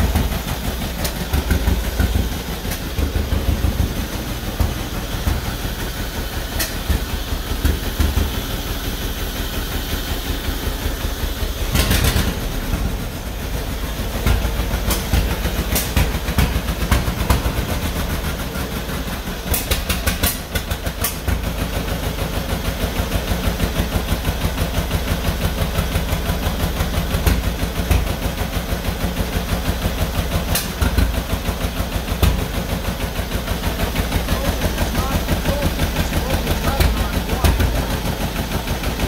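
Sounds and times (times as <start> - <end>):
tractor engine popping unevenly: 0.0 - 39.0
sharp engine cracks: 11.7 - 12.6, 30.4 - 31.2.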